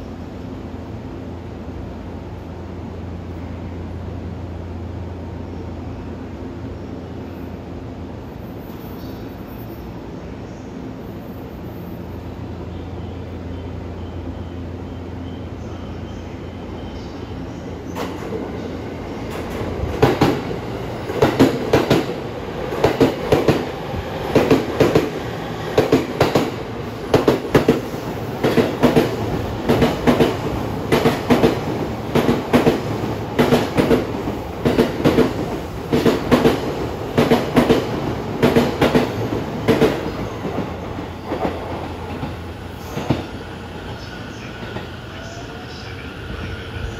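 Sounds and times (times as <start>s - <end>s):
train running rumble: 17.3s - 46.9s.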